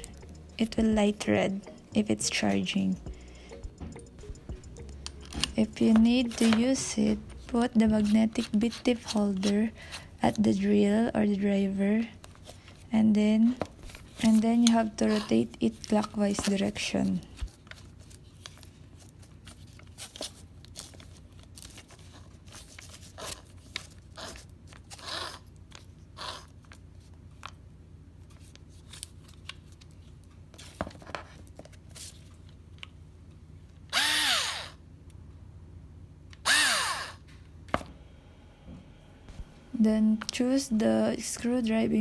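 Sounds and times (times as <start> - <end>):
cordless drill motor whine: 33.9 - 34.8, 36.4 - 37.2.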